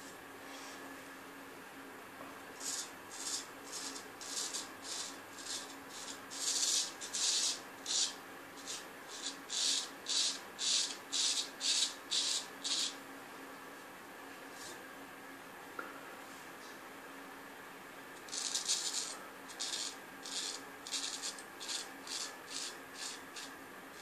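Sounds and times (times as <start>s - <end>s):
razor scraping stubble: 2.6s - 13.0s, 18.3s - 24.0s.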